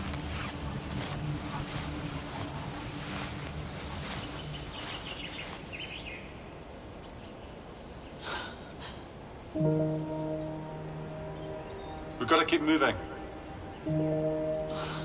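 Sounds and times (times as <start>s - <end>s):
rustling steps through undergrowth: 0.0s - 8.3s
faint bird chirps: 0.2s - 1.2s, 4.0s - 6.4s.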